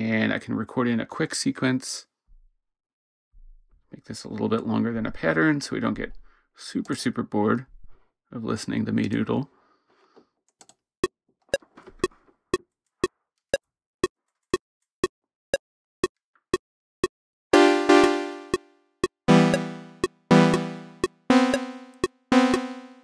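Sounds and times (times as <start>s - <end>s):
synthesizer playing bright notes: 17.6s - 18.7s, 19.3s - 23.0s
metronome clicking: 19.3s - 23.0s.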